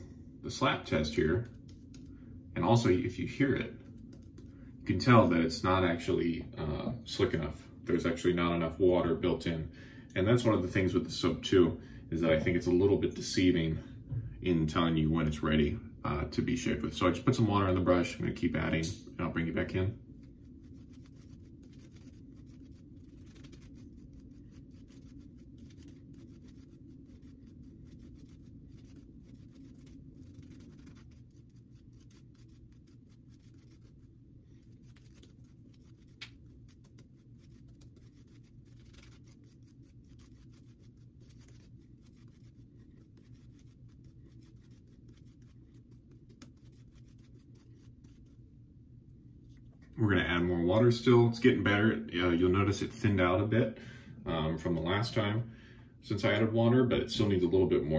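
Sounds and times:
low steady room hum: 0.0 - 57.9
shaving brush swishing lather: 16.5 - 48.6.

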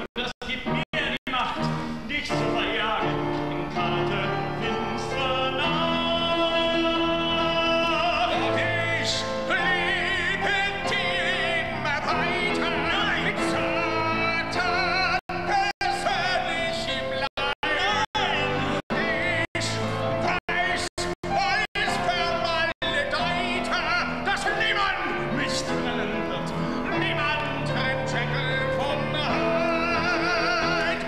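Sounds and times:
man singing operatically: 0.0 - 31.0.

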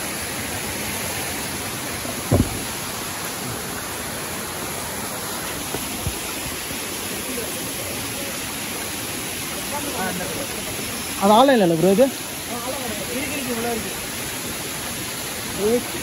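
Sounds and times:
waterfall rushing: 0.0 - 16.0
low thump: 2.3 - 3.0.

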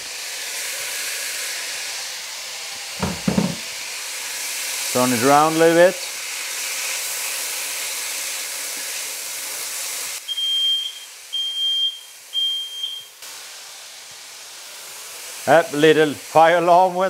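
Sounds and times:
food sizzling in frying pan: 0.0 - 17.0
smoke alarm beeps: 10.2 - 13.2.

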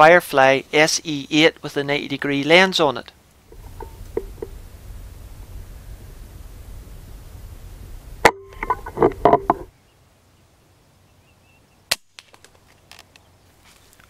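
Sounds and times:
low wind rumble on microphone: 3.4 - 9.7
knocks and rattles: 3.5 - 4.6, 8.3 - 9.7.

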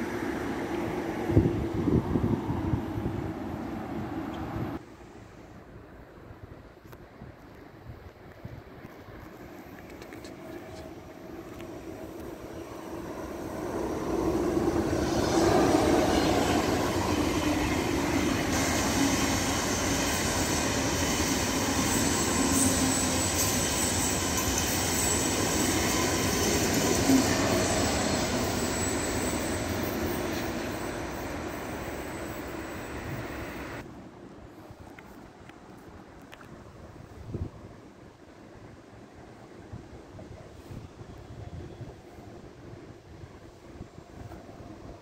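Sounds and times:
train wheels rumbling on rails: 8.6 - 33.8
thin high squeal: 18.6 - 33.6.

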